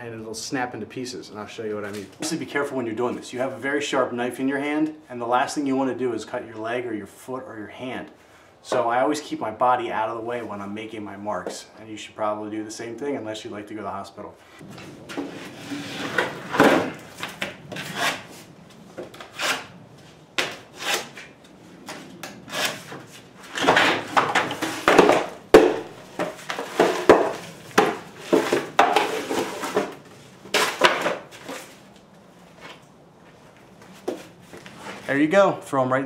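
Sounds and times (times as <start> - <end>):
utility knife scoring drywall: 15.5 - 18.3, 19.2 - 19.7, 20.4 - 21.3, 22.5 - 31.6
broken pieces scraping: 22.5 - 31.8
drywall board cracking: 23.5 - 31.8.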